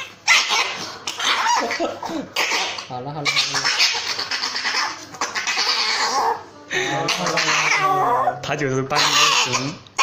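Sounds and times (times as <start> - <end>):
small dog crying raspily: 0.0 - 6.4, 7.1 - 10.0.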